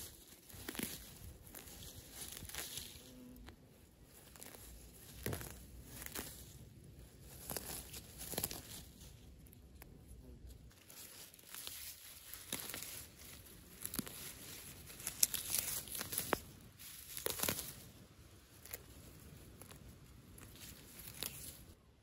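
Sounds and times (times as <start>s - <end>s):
leaves rustling and crackling: 0.0s - 21.8s
stems snapping: 4.2s - 6.6s, 7.3s - 9.9s, 11.5s - 17.8s, 18.5s - 21.6s.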